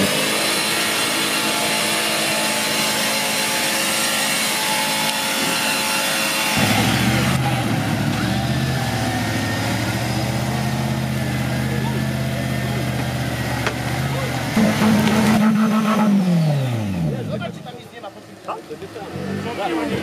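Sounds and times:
low engine note: 6.5s - 20.0s.

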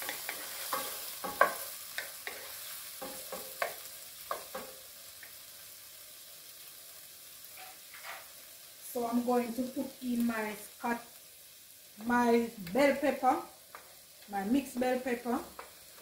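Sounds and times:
wooden spoon scraping a pan: 0.0s - 4.7s, 7.5s - 8.4s
frying sizzle: 0.0s - 16.0s.

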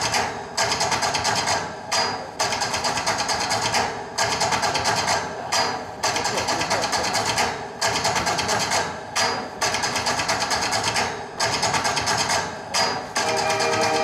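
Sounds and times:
rattling rhythmic music over loudspeakers: 13.2s - 14.0s
sustained orchestral music: 13.2s - 14.0s.

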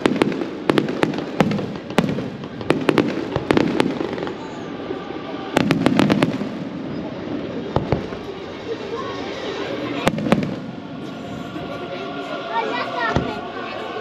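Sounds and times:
fireworks bangs: 0.0s - 4.8s, 5.5s - 8.4s, 10.0s - 11.0s.

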